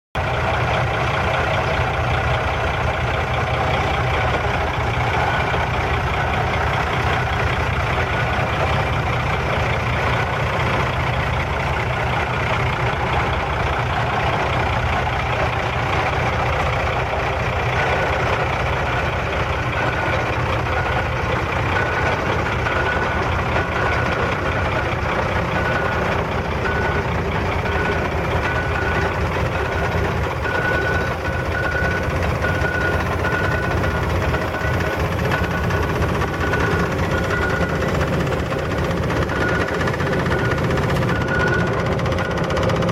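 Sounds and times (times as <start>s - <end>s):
diesel truck engine idling: 0.2s - 42.9s
short high beeps: 30.5s - 38.0s.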